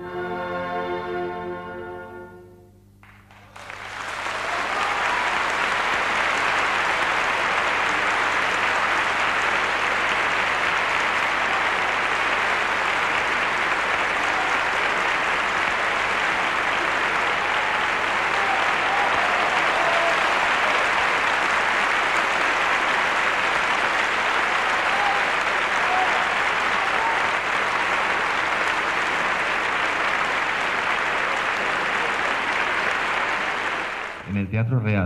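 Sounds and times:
audience applause: 3.0 - 34.4.

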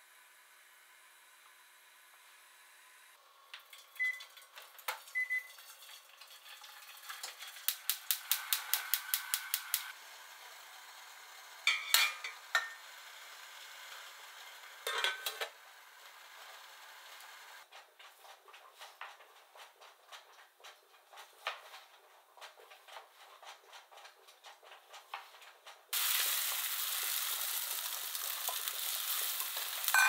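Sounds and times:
hot water pouring into metal pan: 3.6 - 9.8, 26.0 - 30.0
glass dish clinking: 11.7 - 12.8, 14.9 - 15.4
glass lid clattering: 11.7 - 12.8, 14.9 - 15.4.

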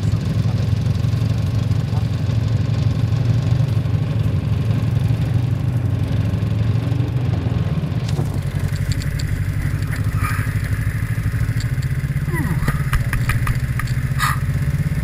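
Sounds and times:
snowmobile engine idling: 0.0 - 15.0
light clicks: 8.1 - 10.1, 11.3 - 12.0.

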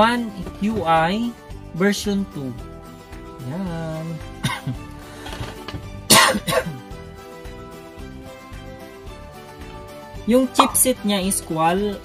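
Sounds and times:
soft sustained music: 0.0 - 12.0.

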